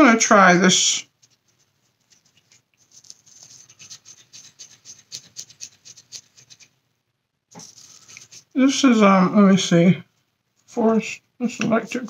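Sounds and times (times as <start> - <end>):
plastic tools scratching: 1.2 - 6.8, 7.6 - 8.6.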